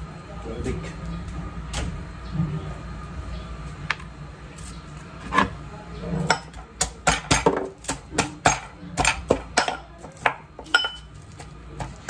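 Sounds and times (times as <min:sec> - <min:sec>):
kitchen utensils knocking: 0:08.4 - 0:11.1.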